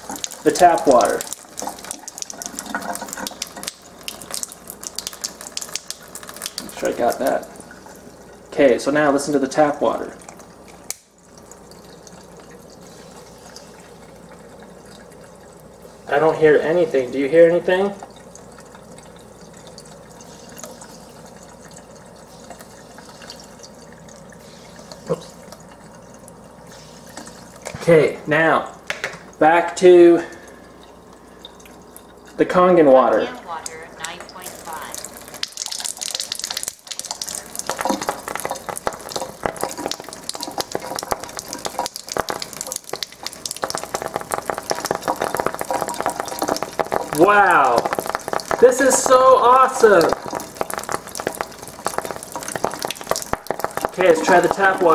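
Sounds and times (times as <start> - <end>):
crackling and popping: 0.0 - 8.0, 10.2 - 12.8, 33.3 - 54.9
tap water running into sink: 0.0 - 29.5, 30.2 - 54.9.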